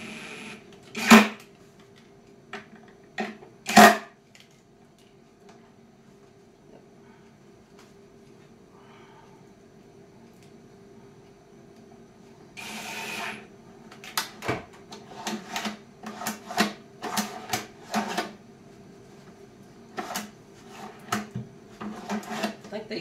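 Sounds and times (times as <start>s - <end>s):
cordless drill running: 0.0s - 1.3s, 12.6s - 13.5s.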